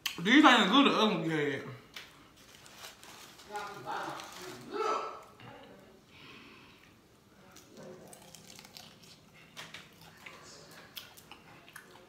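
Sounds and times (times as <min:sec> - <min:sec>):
light crinkle: 0:01.9 - 0:04.7
biting into fried food: 0:07.5 - 0:12.0
chewing with wet clicks: 0:07.5 - 0:12.0.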